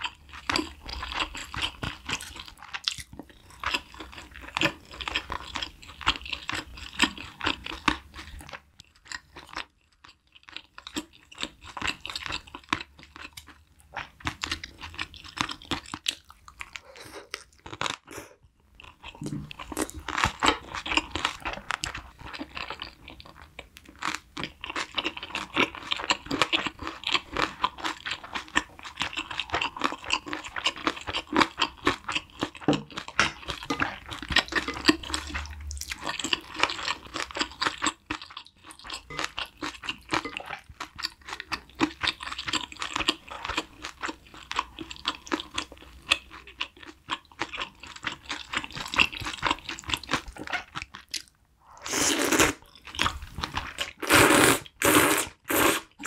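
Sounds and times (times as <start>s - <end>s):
wet chewing and smacking: 0.0s - 54.8s
slurping noodles: 51.6s - 52.6s, 53.5s - 56.0s.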